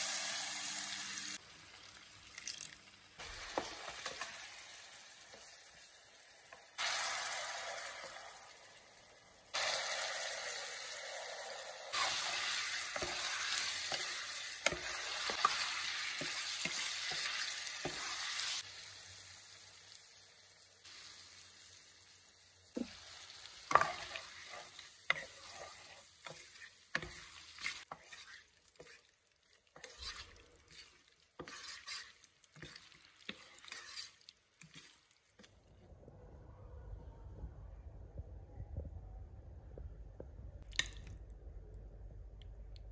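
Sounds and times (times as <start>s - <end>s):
pasta sizzling and bubbling: 0.0s - 35.9s
wooden spoon scraping pan: 12.0s - 18.6s, 23.7s - 35.5s.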